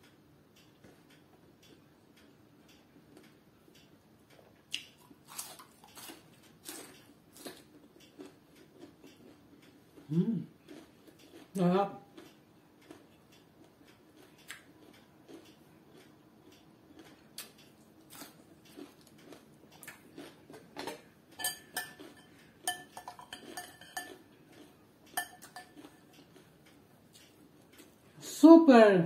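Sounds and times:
close chewing noises: 0:00.6 - 0:28.2
cutlery clinking against glass bowl: 0:21.4 - 0:26.2.

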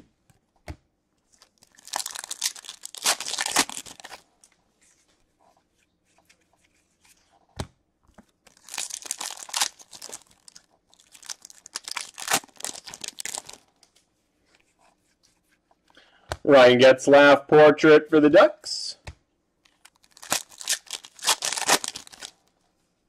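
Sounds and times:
foil wrappers tearing and crinkling: 0:01.5 - 0:04.2, 0:08.5 - 0:13.6, 0:19.8 - 0:22.4.

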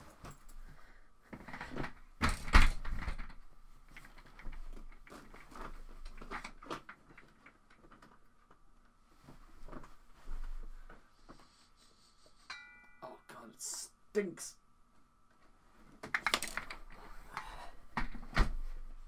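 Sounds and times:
office chair knocking and rattling: 0:01.3 - 0:08.2, 0:18.0 - 0:18.8.

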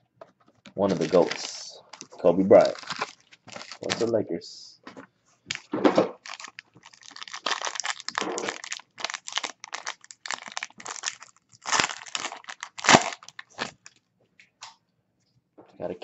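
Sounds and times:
foil wrapper crinkling: 0:00.6 - 0:04.1, 0:05.5 - 0:14.0.

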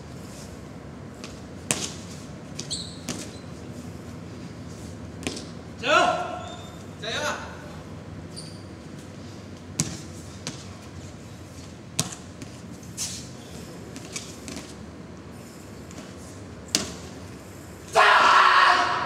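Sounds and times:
footwork on gym mats: 0:00.0 - 0:05.8, 0:08.8 - 0:18.0.

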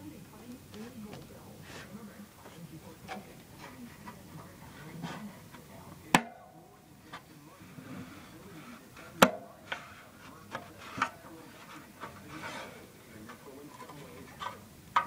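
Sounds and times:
light rubbing: 0:00.6 - 0:06.2, 0:07.0 - 0:15.0.

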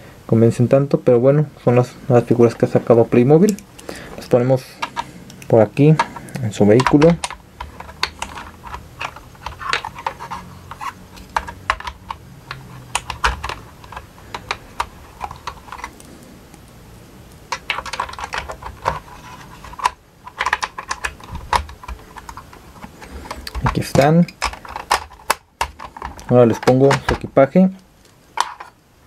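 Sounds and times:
plastic toy clicks and knocks: 0:04.8 - 0:16.0, 0:17.5 - 0:27.3, 0:28.4 - 0:28.8.

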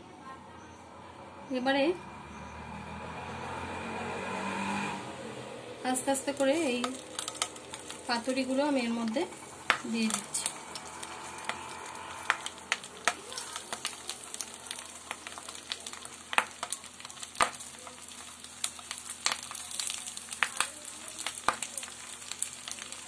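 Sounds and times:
oil sizzling in a wok: 0:01.6 - 0:23.0
oil crackling and popping: 0:05.9 - 0:23.0.

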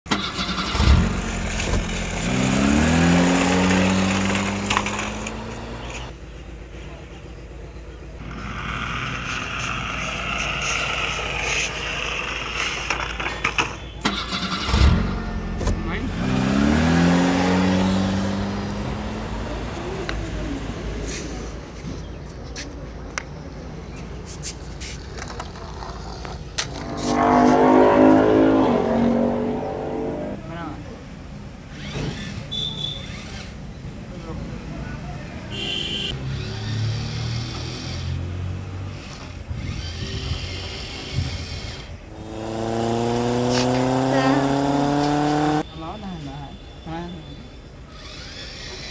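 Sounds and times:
simulated car engine revving: 0:00.1 - 0:06.1, 0:14.6 - 0:20.7, 0:26.6 - 0:30.6, 0:36.1 - 0:45.7
plastic toy vehicles clicking: 0:03.3 - 0:06.1, 0:08.3 - 0:14.3, 0:24.8 - 0:26.8, 0:47.9 - 0:48.9.

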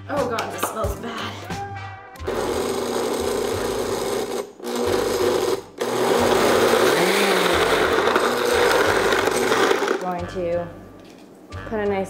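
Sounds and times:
blender crushing ice: 0:02.2 - 0:10.1.

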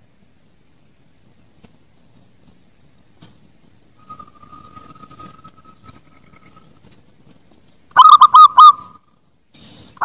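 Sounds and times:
dove cooing: 0:04.0 - 0:06.9, 0:07.9 - 0:09.0.

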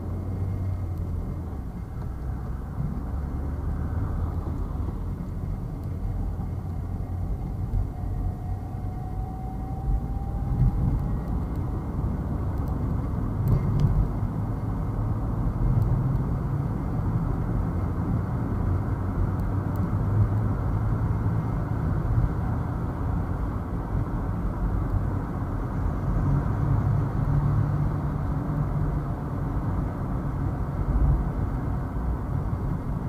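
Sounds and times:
car road and engine rumble: 0:00.0 - 0:33.0
faint rising whine: 0:03.7 - 0:11.9.

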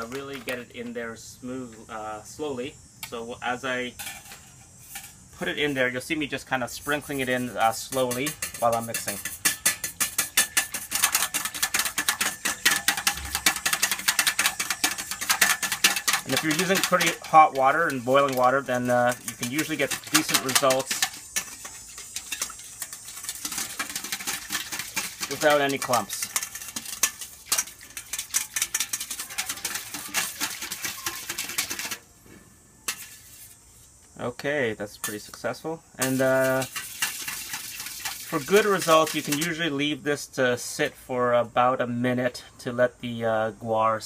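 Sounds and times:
wire whisk clicking in metal bowl: 0:08.0 - 0:32.0.

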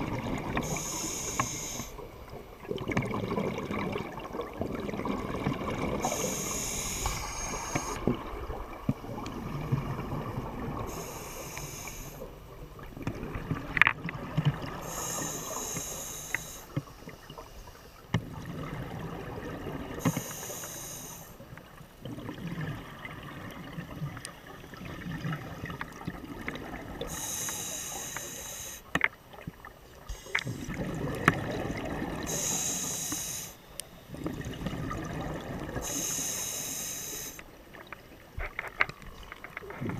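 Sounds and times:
exhaled bubbles gurgling: 0:00.0 - 0:16.1, 0:18.2 - 0:20.6, 0:22.0 - 0:28.2, 0:29.3 - 0:33.4, 0:34.1 - 0:37.3
regulator inhalation hiss: 0:00.6 - 0:02.0, 0:06.0 - 0:08.0, 0:10.9 - 0:12.4, 0:14.8 - 0:16.8, 0:20.0 - 0:21.4, 0:27.1 - 0:28.9, 0:32.3 - 0:33.6, 0:35.8 - 0:37.4.

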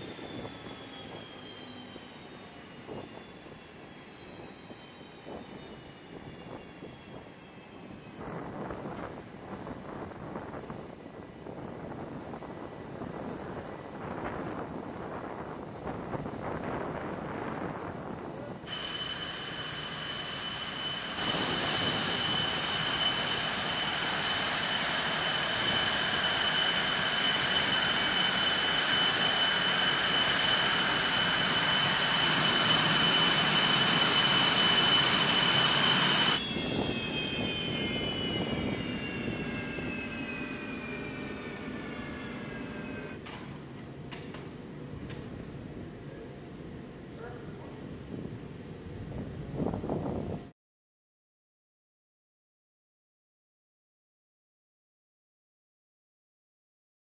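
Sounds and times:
jet engines whining: 0:00.0 - 0:50.3.

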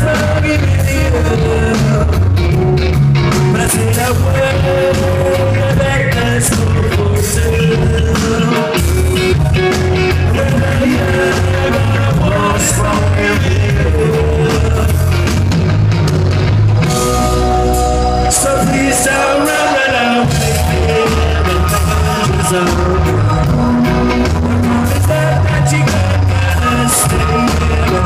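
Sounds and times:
rock band playing live: 0:00.0 - 0:28.0
person singing: 0:10.1 - 0:15.2, 0:16.9 - 0:28.0.

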